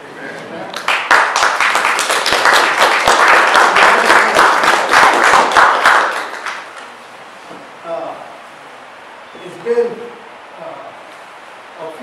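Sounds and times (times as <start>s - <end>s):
audience applauding: 0.7s - 7.0s.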